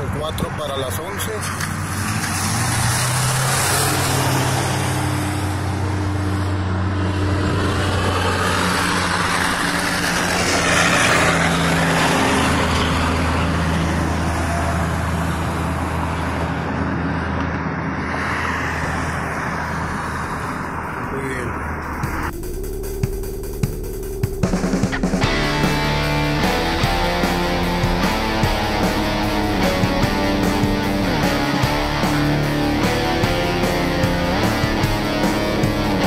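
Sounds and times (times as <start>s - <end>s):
heavy truck passing: 0.0s - 36.0s
vehicle engines running: 0.0s - 36.0s.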